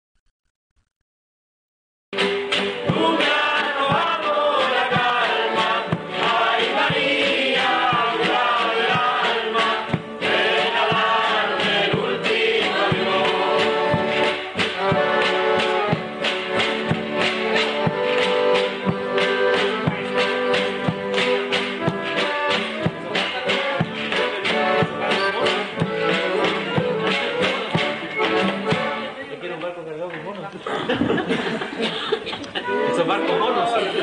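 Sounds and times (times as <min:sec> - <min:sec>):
drum beating steadily: 0:02.2 - 0:29.2
group of voices singing: 0:02.6 - 0:28.7.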